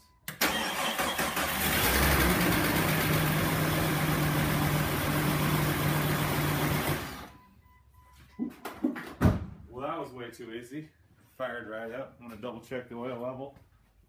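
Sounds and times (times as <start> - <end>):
engine cranking: 0.4 - 2.4.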